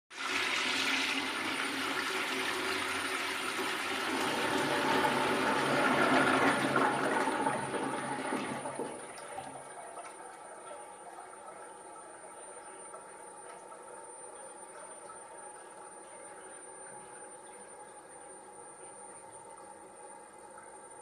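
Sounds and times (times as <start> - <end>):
toilet flushing: 0.1 - 21.0.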